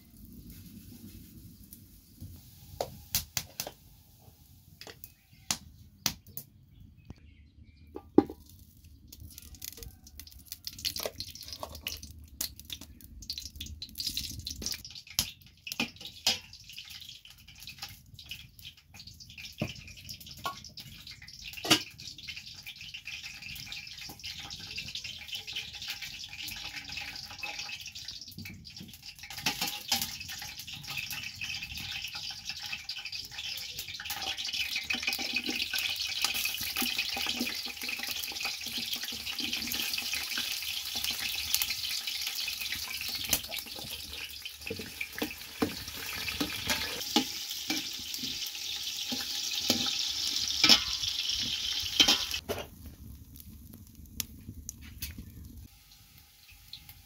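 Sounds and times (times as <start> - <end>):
wood fire crackling: 0.0 - 7.2, 8.2 - 57.0
ladle clinking against metal pots: 46.3 - 48.0, 50.6 - 51.1, 52.0 - 52.4
steady hiss: 54.8 - 57.0.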